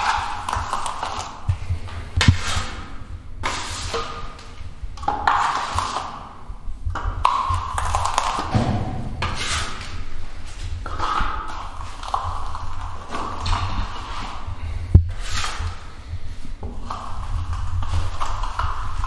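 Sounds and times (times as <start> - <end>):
blade scraping compound on wall: 0.0 - 6.4, 7.7 - 16.0.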